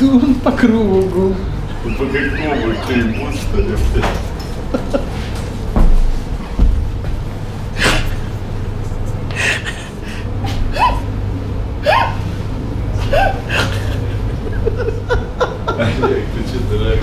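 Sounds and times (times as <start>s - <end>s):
steady low hum: 0.0s - 17.0s
person laughing breathily: 1.6s - 5.4s, 9.3s - 10.6s, 13.0s - 16.1s
squeaks of voice: 1.7s - 3.9s.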